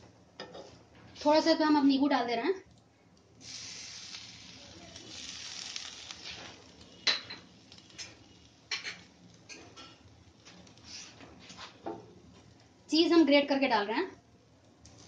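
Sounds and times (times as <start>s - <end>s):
food sizzling in a frying pan: 3.4s - 14.1s, 14.8s - 15.0s
kitchen utensils and dishes clinking: 6.2s - 10.1s.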